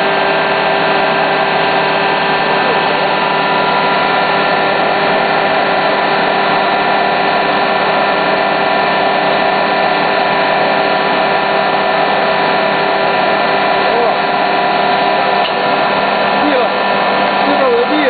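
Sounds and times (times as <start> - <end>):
induction heater droning: 0.0 - 18.0.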